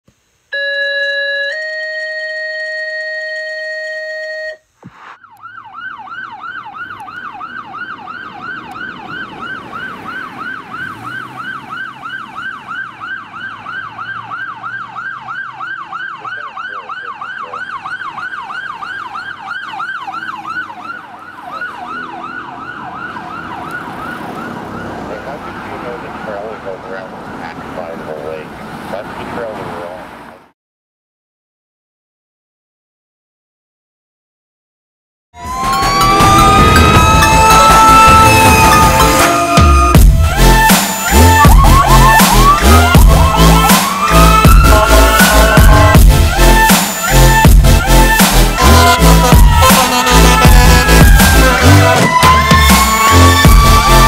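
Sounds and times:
electronic siren yelp: 0.5 - 26.6, 35.4 - 54.0
held synth chord: 35.4 - 52.1.

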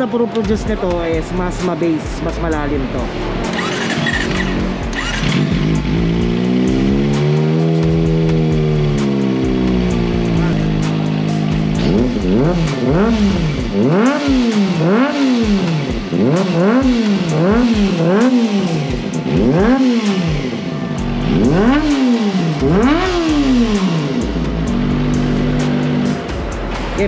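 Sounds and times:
motorcycle engine revving: 0.0 - 27.0.

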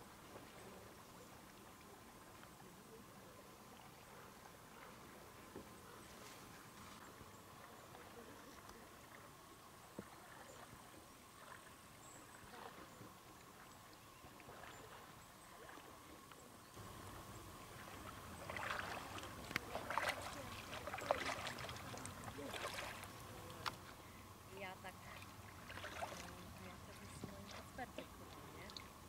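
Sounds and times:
faint steady hiss: 0.0 - 29.0
kayak paddle splashing in water: 9.9 - 16.1, 16.8 - 24.0, 25.1 - 29.0.

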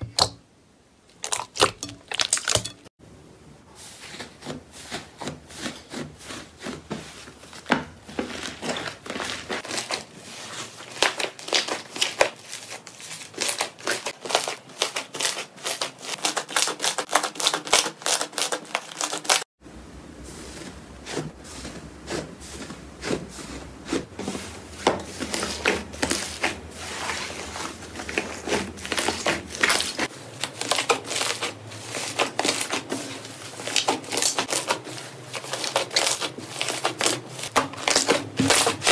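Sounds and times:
slime crust crackling: 7.5 - 19.4, 25.1 - 38.9.

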